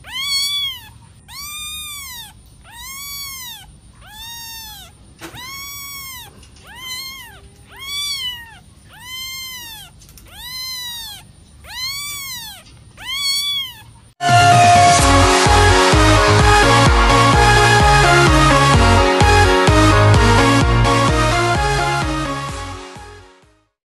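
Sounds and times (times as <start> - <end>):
kitten meowing: 0.0 - 14.1
electronic dance music: 14.2 - 23.2.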